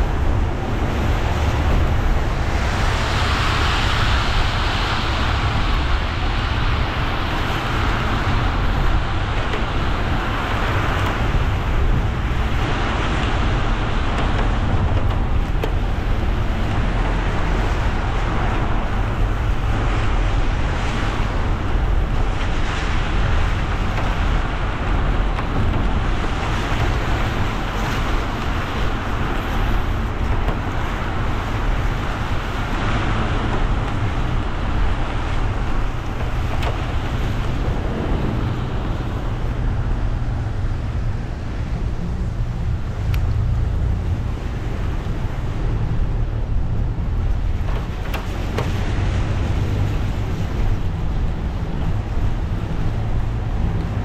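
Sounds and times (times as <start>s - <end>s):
tyres hissing on wet road: 0.0s - 41.7s
car engine rumble: 0.0s - 54.0s.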